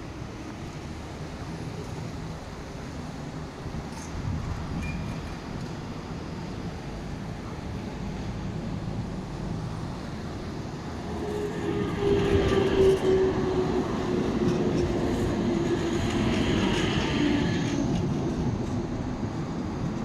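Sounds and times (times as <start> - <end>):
tram wheels rumbling on rails: 0.0 - 20.0
tram drive tone: 7.4 - 20.0.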